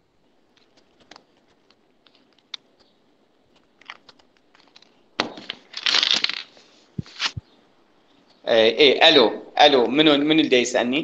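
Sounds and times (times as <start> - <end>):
rustling crackling noise: 0.0 - 8.4.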